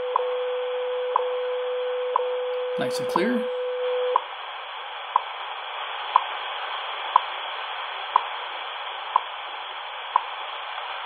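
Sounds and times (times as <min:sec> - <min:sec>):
radio time signal ticks: 0:02.1 - 0:04.3, 0:05.1 - 0:05.3, 0:06.1 - 0:06.3, 0:07.1 - 0:07.4, 0:08.1 - 0:08.3, 0:09.1 - 0:09.3, 0:10.1 - 0:10.3
radio static hiss: 0:02.8 - 0:03.6, 0:04.3 - 0:11.0.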